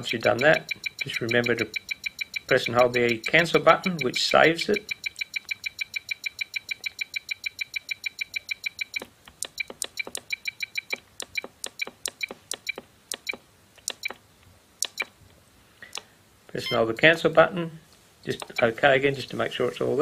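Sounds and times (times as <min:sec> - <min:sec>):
radio transmitter beeping: 0:00.0 - 0:05.5, 0:18.4 - 0:18.9.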